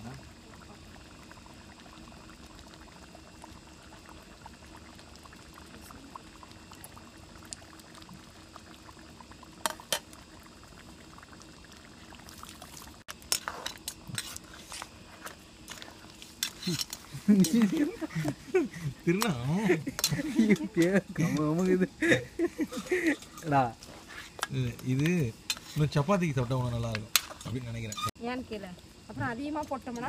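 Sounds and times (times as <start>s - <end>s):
curry bubbling in a pan: 0.0s - 28.2s
metal ladle scraping a pan: 13.2s - 17.8s, 22.8s - 25.9s, 27.1s - 28.1s.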